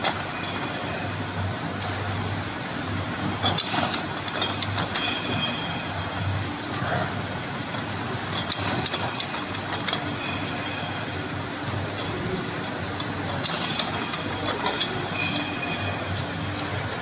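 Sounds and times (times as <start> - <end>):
high-pitched metallic clatter and squeal: 0.0 - 1.3, 3.4 - 6.6, 8.3 - 11.6, 13.4 - 17.0
machine mechanical hum and hiss: 0.0 - 17.0.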